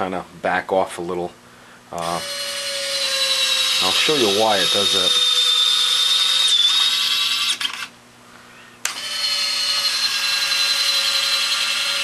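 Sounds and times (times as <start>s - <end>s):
small electric motor whining: 2.0s - 7.9s, 8.8s - 12.0s.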